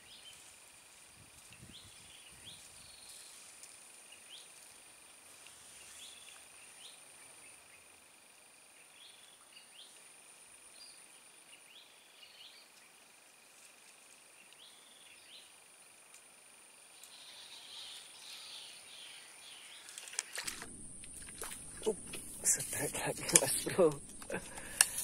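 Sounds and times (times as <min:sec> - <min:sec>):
insect trill: 0:00.0 - 0:25.0
insect whine: 0:00.0 - 0:25.0
sharp clicks: 0:20.2 - 0:25.0.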